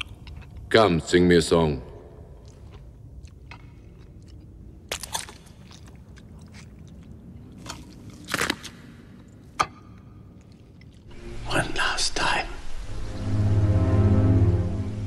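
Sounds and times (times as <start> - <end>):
man chewing wetly: 0.0 - 0.7, 2.0 - 11.1
crunching bites: 2.3 - 9.3.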